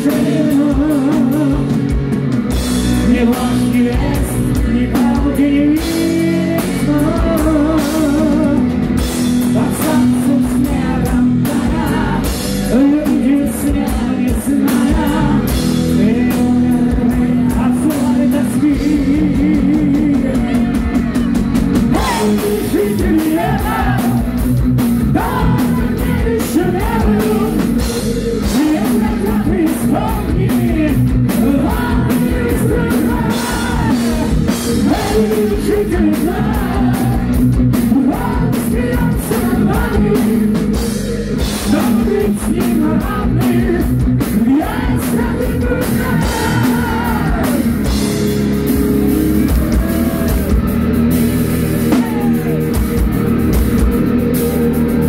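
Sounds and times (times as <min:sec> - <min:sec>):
bass guitar: 0:00.0 - 0:55.0
distorted electric guitars: 0:00.0 - 0:55.0
drum kit: 0:00.0 - 0:55.0
person singing lead: 0:21.9 - 0:24.4, 0:25.1 - 0:47.9.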